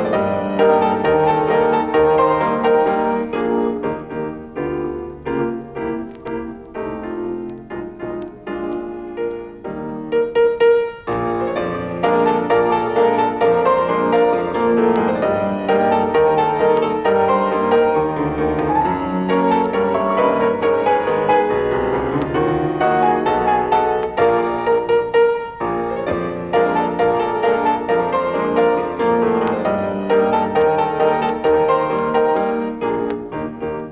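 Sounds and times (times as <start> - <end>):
piano accompaniment: 0.0 - 33.9.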